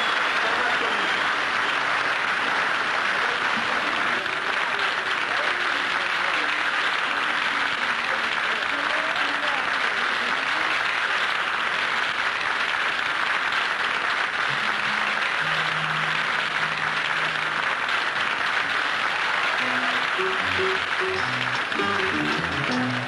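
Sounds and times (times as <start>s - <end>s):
audience applauding: 0.0s - 23.0s
short pitched band notes: 19.6s - 23.0s.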